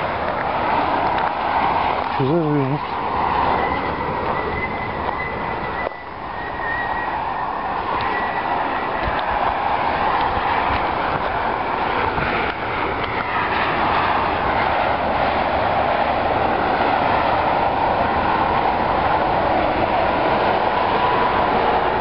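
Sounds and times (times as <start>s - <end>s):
traffic rushing past: 0.0s - 22.0s.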